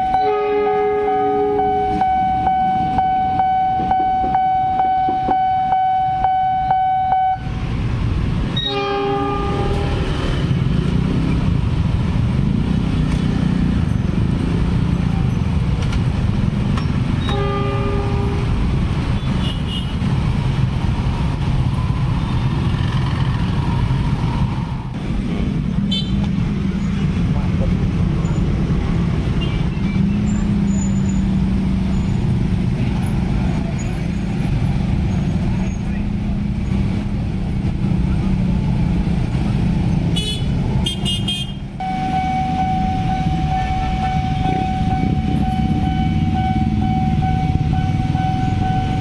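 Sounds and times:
horn toots: 0:00.0 - 0:07.5, 0:08.6 - 0:10.3, 0:17.2 - 0:18.6, 0:40.1 - 0:49.0
level crossing warning alarm: 0:00.0 - 0:07.6, 0:41.8 - 0:49.0
motorcycle engines: 0:00.0 - 0:49.0.

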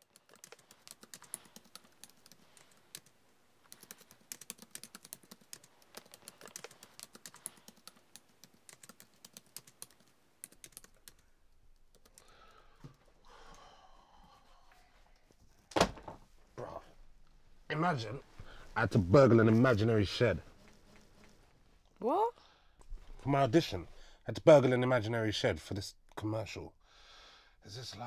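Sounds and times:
typing on laptop keyboard: 0:00.0 - 0:11.2, 0:11.8 - 0:12.6.

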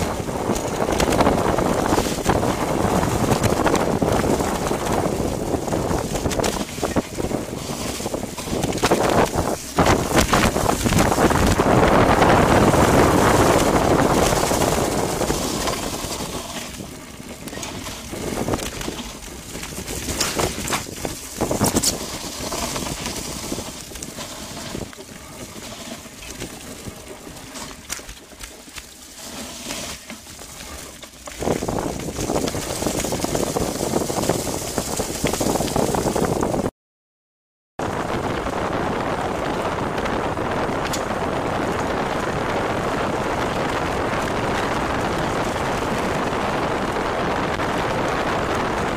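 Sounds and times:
wind buffeting microphone: 0:00.0 - 0:28.8, 0:30.6 - 0:36.7, 0:37.8 - 0:48.9
bike knocks and rattles: 0:00.0 - 0:36.7
tyre noise on dirt: 0:00.0 - 0:36.7, 0:37.9 - 0:48.9.

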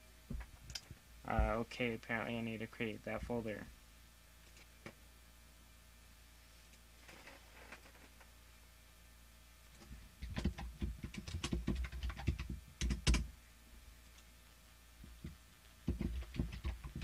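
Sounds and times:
typing on a keyboard: 0:10.2 - 0:13.3, 0:15.8 - 0:17.0.

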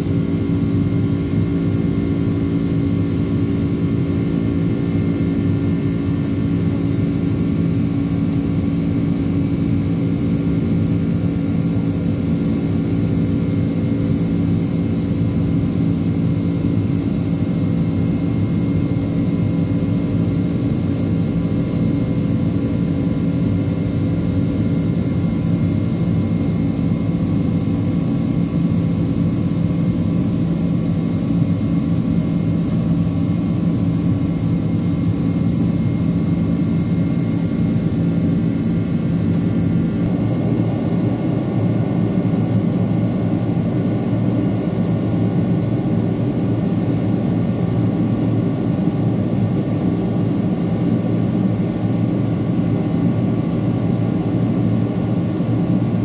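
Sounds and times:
jet engines droning: 0:00.0 - 0:56.0
steady hum tones: 0:20.0 - 0:56.0.

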